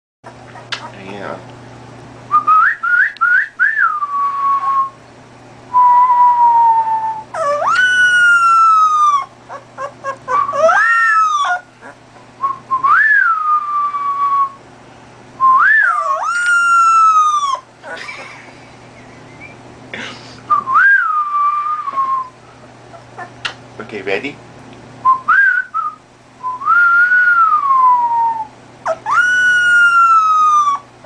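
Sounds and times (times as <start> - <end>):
puppy whining and howling: 6.0 - 12.0, 15.6 - 18.3, 22.9 - 23.4, 27.3 - 31.0.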